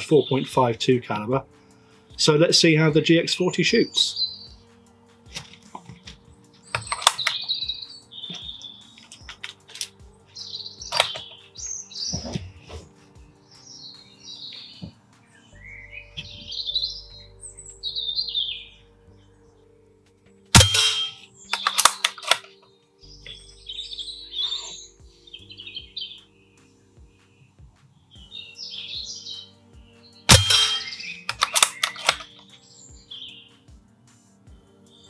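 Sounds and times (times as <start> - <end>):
birds chirping: 0.0 - 35.0
quiet rifle clicks: 5.3 - 7.5, 8.3 - 10.0, 20.6 - 22.6, 30.3 - 32.4
air rifle shots: 20.6 - 22.4, 30.3 - 32.3.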